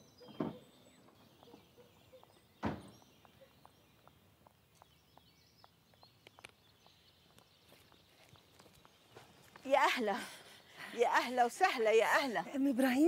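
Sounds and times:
birds chirping: 0.0 - 13.0
high heel footsteps on concrete: 1.4 - 10.1
loud thump: 2.6 - 3.0.

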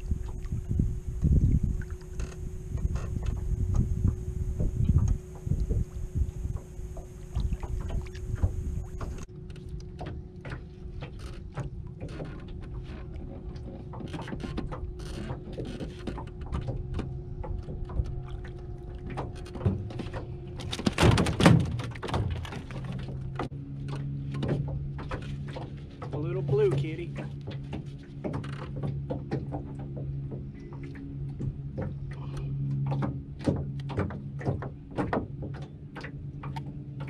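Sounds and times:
clicks and knocks in aluminum boat: 0.0 - 37.0.

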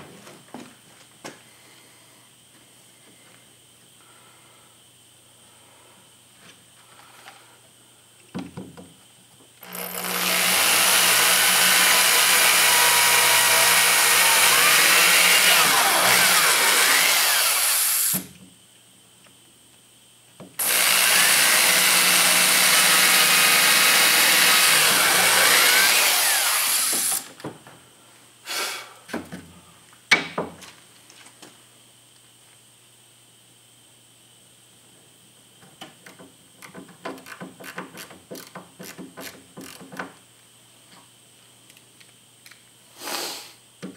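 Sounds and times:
electric drill boring into wood: 9.6 - 18.3, 20.6 - 27.3.

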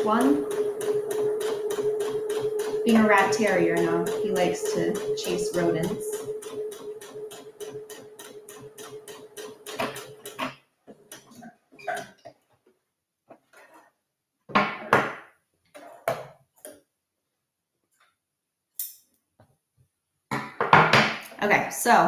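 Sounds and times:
sewing machine stitching: 0.0 - 12.3.

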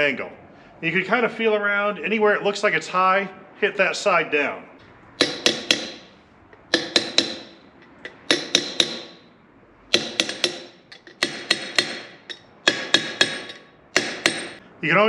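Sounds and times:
hammer striking metal: 5.2 - 9.3, 9.9 - 14.6.

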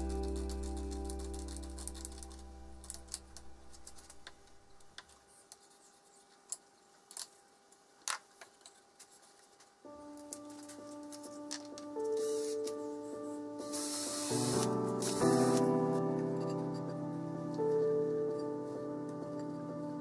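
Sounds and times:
background music: 0.0 - 4.0, 9.9 - 20.0.

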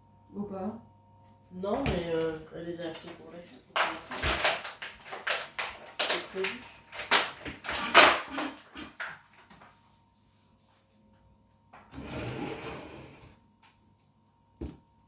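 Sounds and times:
rubbing scraping noise: 11.9 - 13.2.

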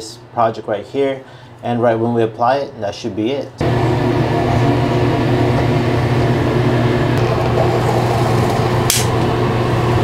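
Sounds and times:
exhaust fan humming: 3.6 - 10.0.

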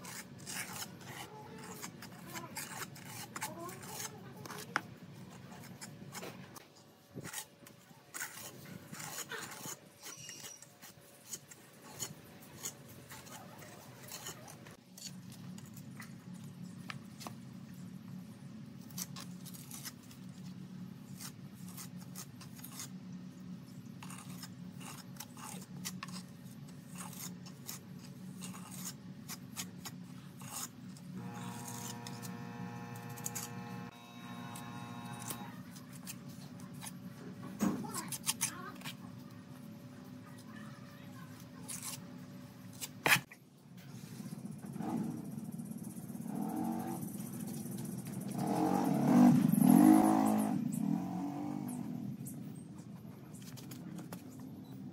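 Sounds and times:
trowel scraping wet cement: 0.0 - 16.1, 21.1 - 23.0, 23.7 - 37.0, 41.2 - 42.0.

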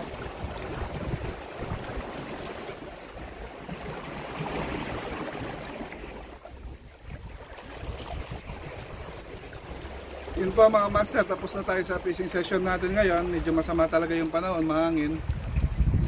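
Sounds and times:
wind buffeting microphone: 0.0 - 2.7, 6.5 - 11.2, 12.6 - 16.0
small waves against rocks: 0.0 - 16.0.

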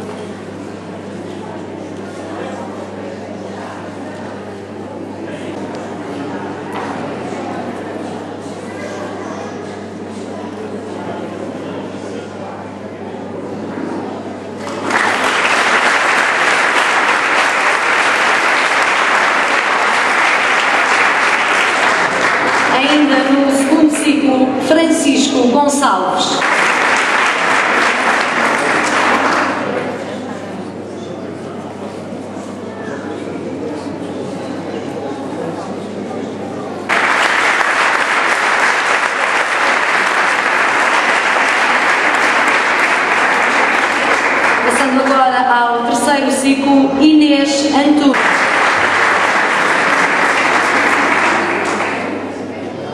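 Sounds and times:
crowd applause: 14.6 - 23.6, 26.2 - 30.3, 36.9 - 45.3, 48.1 - 52.8.

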